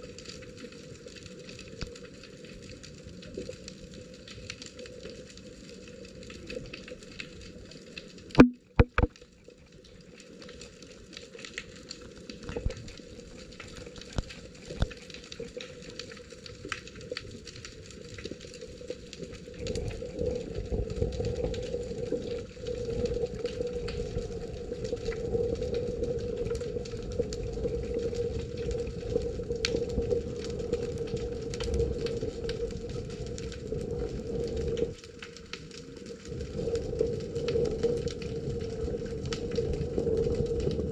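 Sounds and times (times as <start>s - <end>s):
underwater crackle of fine clicks: 0.1s - 40.9s
sharp knocks: 8.4s - 9.1s.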